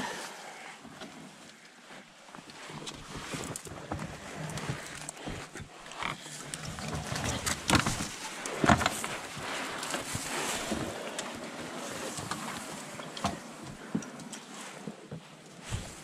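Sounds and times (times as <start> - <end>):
brush scraping along canoe hull: 2.6 - 15.0.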